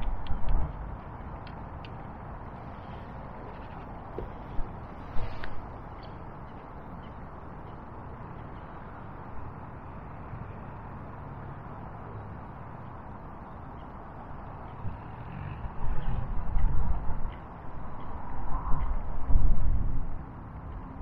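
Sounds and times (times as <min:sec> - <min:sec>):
low buffeting rumble: 0:00.0 - 0:13.3
low outdoor rumble: 0:00.0 - 0:21.0.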